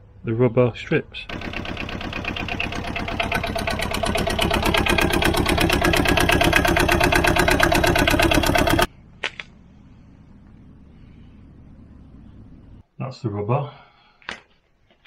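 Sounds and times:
small diesel engine idling: 1.3s - 8.9s
faint low hum: 8.9s - 14.2s.

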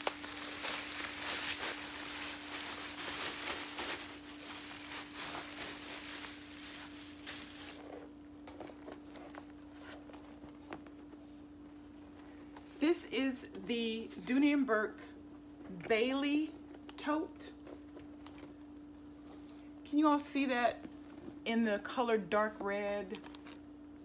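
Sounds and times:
plastic wrapping crinkling: 0.0s - 11.1s.

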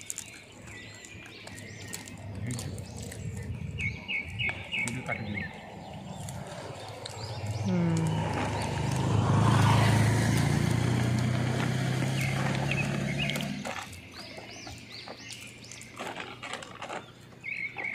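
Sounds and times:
vehicle passing by: 5.1s - 14.6s.

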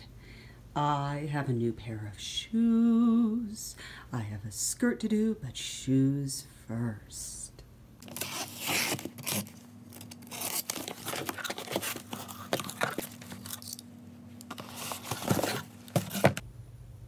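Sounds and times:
cardboard scraping and rustling: 8.0s - 13.8s, 14.5s - 16.4s
packing tape tearing: 8.0s - 13.8s, 14.4s - 16.4s.

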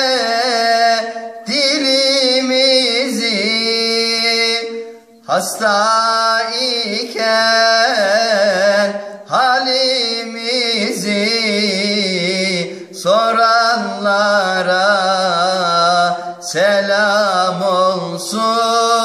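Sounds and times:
solo singer with vibrato: 0.0s - 19.0s
singer breathing: 1.1s - 1.4s, 9.0s - 9.3s, 12.7s - 13.0s, 16.2s - 16.4s.

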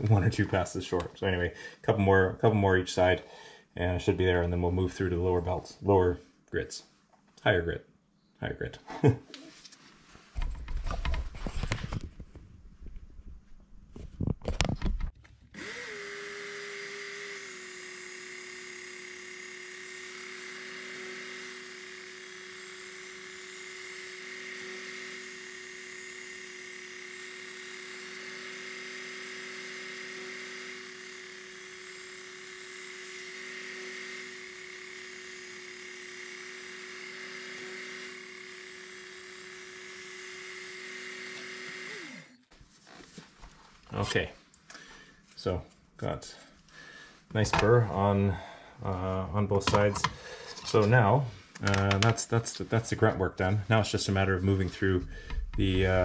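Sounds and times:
belt sharpener motor whining: 15.5s - 42.5s.

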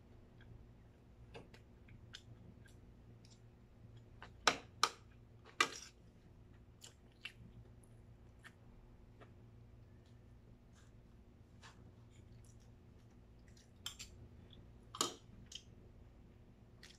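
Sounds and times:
chewing: 6.8s - 8.7s, 12.0s - 15.8s.

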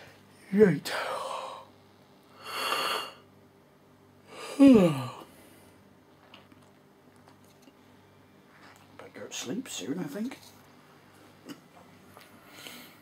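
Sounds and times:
man yawning: 4.3s - 5.3s.

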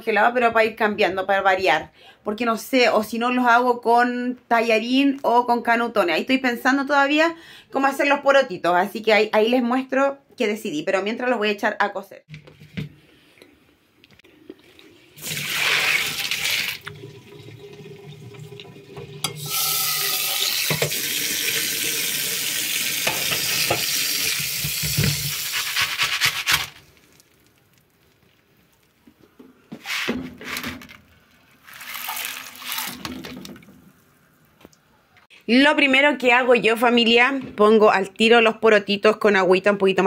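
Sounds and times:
water splashes: 14.3s - 19.2s, 31.5s - 34.1s
tap water running into pot: 14.4s - 25.7s, 31.6s - 33.8s.

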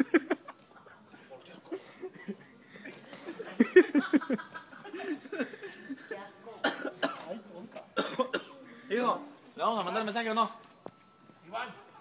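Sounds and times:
young people laughing: 0.0s - 6.2s.

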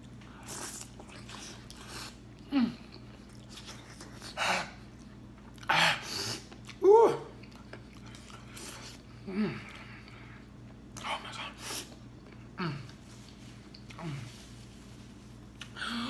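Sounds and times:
man chewing with mouth noises: 0.0s - 15.8s
man humming moans: 9.2s - 9.8s.

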